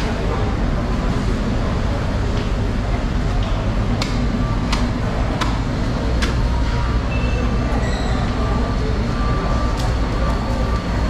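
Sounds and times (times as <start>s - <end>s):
engine rumble: 0.0s - 11.0s.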